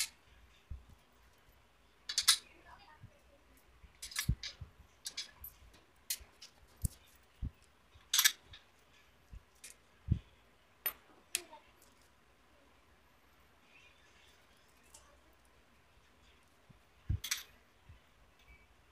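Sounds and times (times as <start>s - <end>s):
metal tools clinking: 2.1s - 2.5s, 4.0s - 7.3s, 8.0s - 9.0s, 17.2s - 17.6s.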